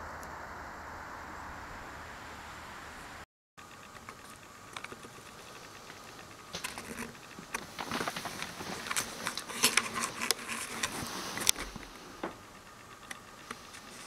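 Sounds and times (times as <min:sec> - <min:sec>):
handling rustling: 0:04.1 - 0:12.5.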